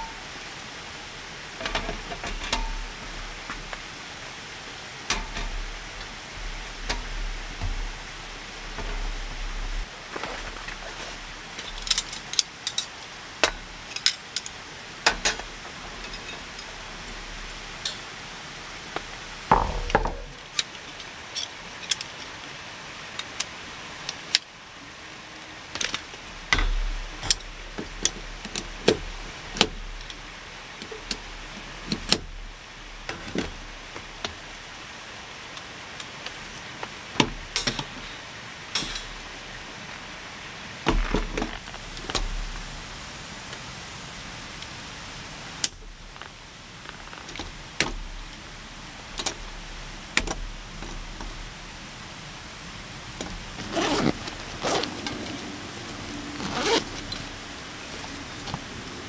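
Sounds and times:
rain hissing: 0.0s - 59.0s
metal camping gear clicking: 1.6s - 3.8s, 5.0s - 18.1s, 19.0s - 22.5s, 25.7s - 32.4s, 37.2s - 39.3s, 45.6s - 48.3s, 49.1s - 51.4s, 53.2s - 57.3s
louder knocks: 19.5s - 20.4s.

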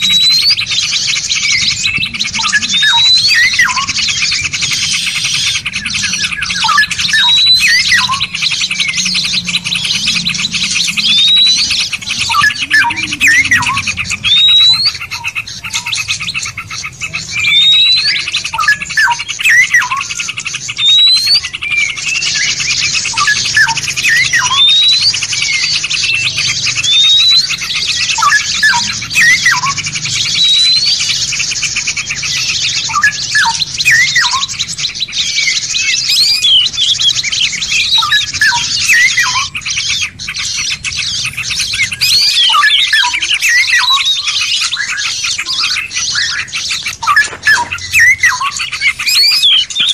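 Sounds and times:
low bird chirps: 0.0s - 49.9s
songbirds chattering: 0.0s - 49.9s
short upswept bird whistle: 10.2s - 16.0s, 41.7s - 49.9s.

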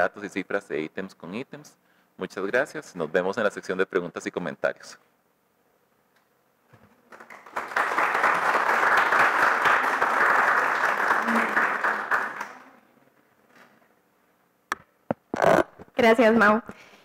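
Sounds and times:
audience applauding: 7.1s - 12.8s.

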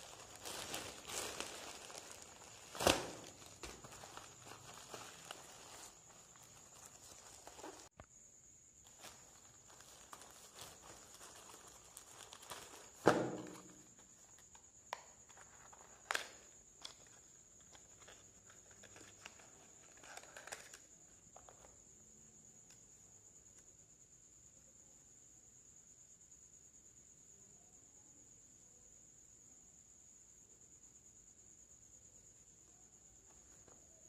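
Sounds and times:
plastic packaging rustling: 0.0s - 7.9s, 8.8s - 14.6s, 15.2s - 21.7s.

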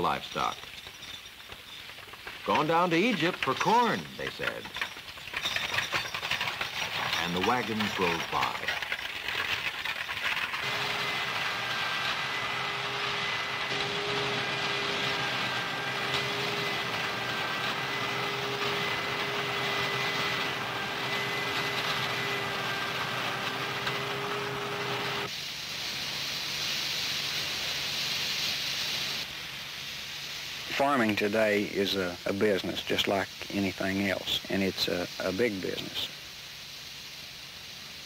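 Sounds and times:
high hissing noise: 0.0s - 5.2s, 25.2s - 38.0s
machine whine: 1.9s - 25.3s
combine harvester running: 2.2s - 25.3s.

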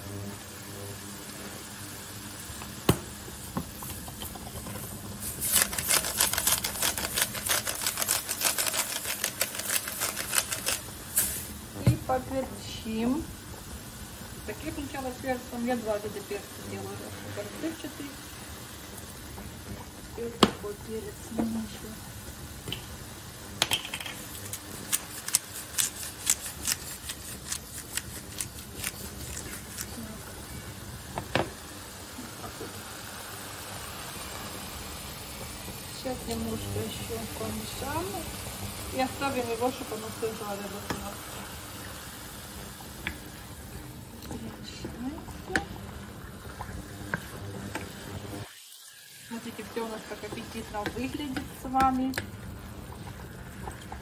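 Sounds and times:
pepper mill grinding: 4.8s - 11.5s, 23.7s - 30.2s.

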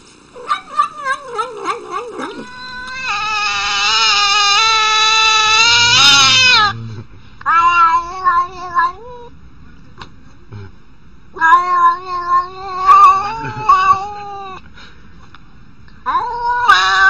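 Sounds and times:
cat meowing: 0.4s - 6.8s, 7.5s - 9.3s, 11.4s - 14.6s, 16.1s - 17.0s
cat yowling: 0.4s - 6.8s, 7.5s - 9.3s, 11.4s - 14.6s, 16.1s - 17.0s
cats warbling cries: 0.4s - 9.3s, 11.4s - 14.6s, 16.0s - 17.0s.

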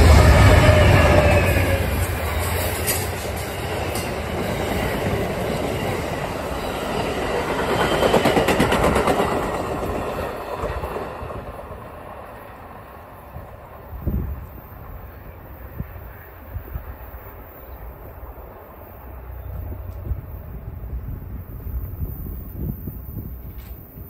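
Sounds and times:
train wheels clattering over rail joints: 2.0s - 11.8s.

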